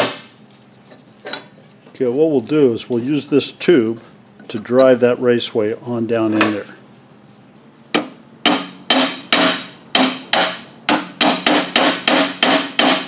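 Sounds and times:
hammer tapping on metal tube: 0:08.0 - 0:13.0.

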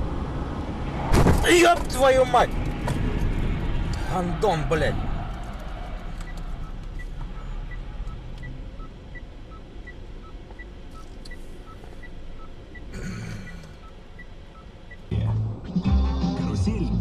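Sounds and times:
car engine and road noise: 0:00.0 - 0:17.0
alternating electronic ticking: 0:06.2 - 0:15.2.

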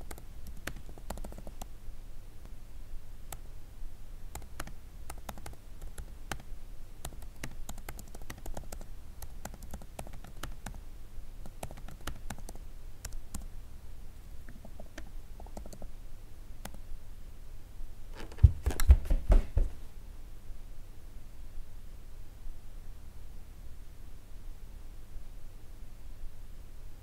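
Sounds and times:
laptop keyboard typing: 0:00.0 - 0:01.7, 0:04.3 - 0:10.8, 0:11.4 - 0:13.5, 0:14.5 - 0:15.9.

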